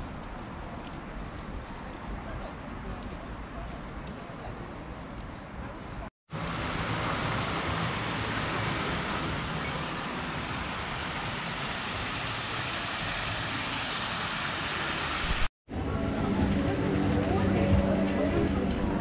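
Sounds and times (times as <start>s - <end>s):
fountain water splashing: 6.3s - 15.5s.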